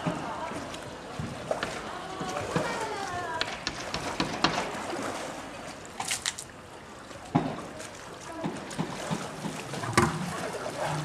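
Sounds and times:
faint voices: 0:00.0 - 0:03.6
water sloshing and splashing: 0:00.0 - 0:11.0.

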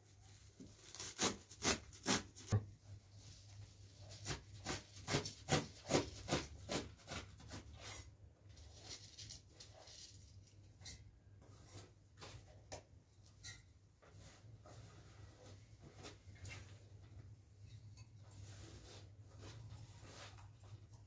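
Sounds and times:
knife cutting fresh greens: 0:00.8 - 0:02.6, 0:04.0 - 0:08.1.

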